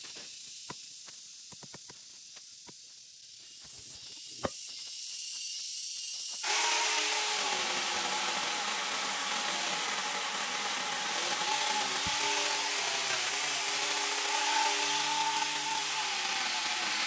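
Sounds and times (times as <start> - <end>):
power saw cutting branch: 6.4 - 17.0.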